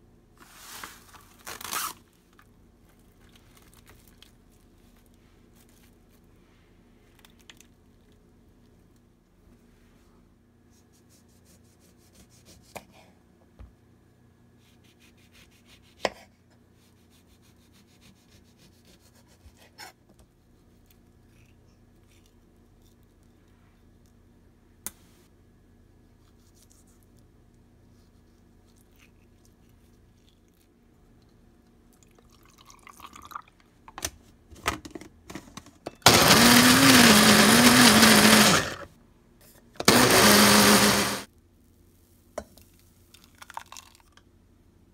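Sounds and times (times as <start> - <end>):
blender running: 36.0 - 38.9, 39.8 - 41.3.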